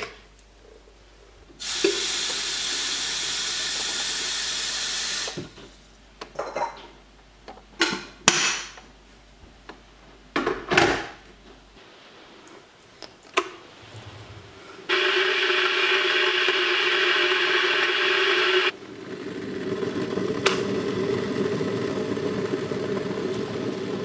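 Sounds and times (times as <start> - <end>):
tap water running into kettle: 1.6 - 5.5.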